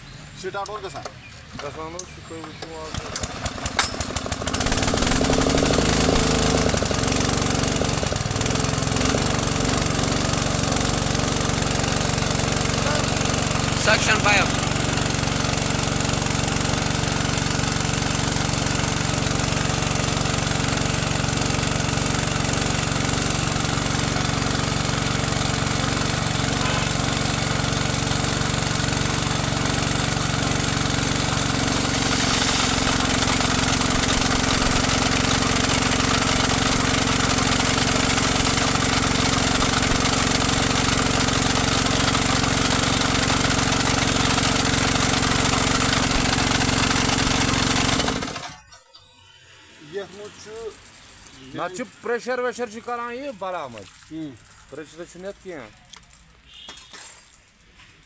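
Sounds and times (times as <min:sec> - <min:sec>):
small petrol engine running: 0:02.5 - 0:48.8, 0:49.6 - 0:56.5
water jet spraying hiss: 0:22.8 - 0:40.8.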